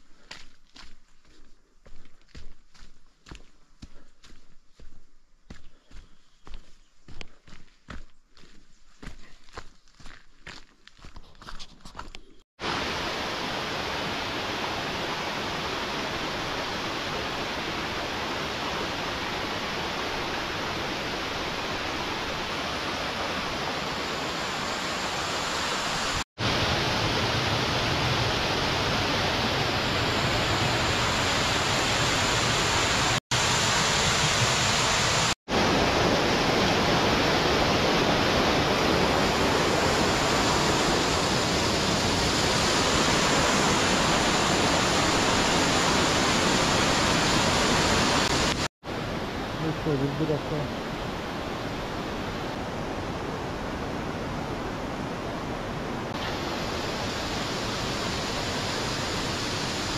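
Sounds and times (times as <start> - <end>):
stream water rushing over rocks: 12.6 - 54.2, 56.2 - 59.9.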